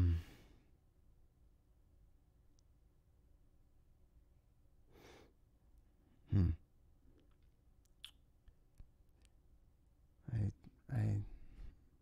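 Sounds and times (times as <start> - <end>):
man sighing: 0.0 - 0.6.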